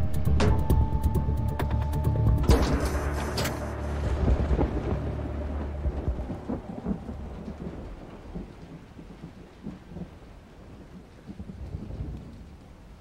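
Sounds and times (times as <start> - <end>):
thunder rumbling: 0.0 - 13.0
steady rain: 2.7 - 13.0.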